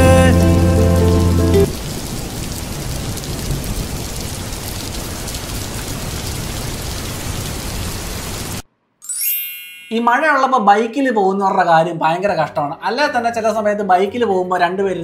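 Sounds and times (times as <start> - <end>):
heavy rain: 0.0 - 8.6.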